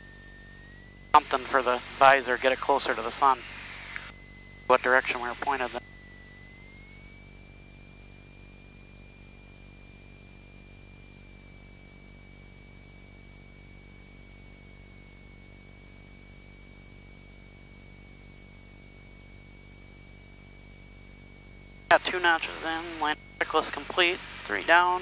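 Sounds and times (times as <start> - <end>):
thin whistle-like tone: 0.0 - 1.0, 5.8 - 20.3
aircraft engine drone: 0.0 - 8.7, 21.9 - 25.0
cockpit hiss and hum: 0.0 - 25.0.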